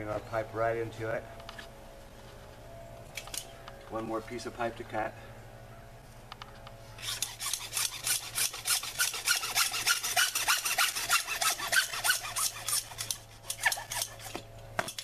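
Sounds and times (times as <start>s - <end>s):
hacksaw cutting plastic pipe: 7.0s - 15.0s.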